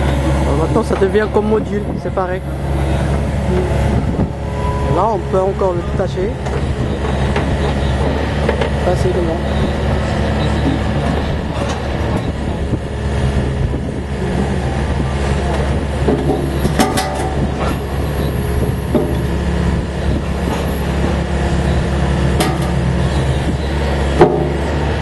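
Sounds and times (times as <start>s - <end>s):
excavator diesel engine and hydraulics: 0.0s - 25.0s
short metal knocks: 16.0s - 21.2s, 22.2s - 25.0s.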